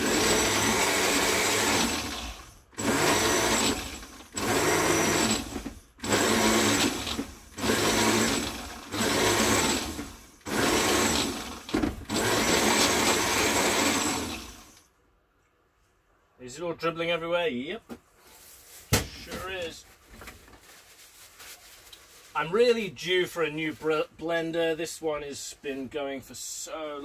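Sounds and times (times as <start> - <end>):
blender pulsing: 0.0 - 14.8.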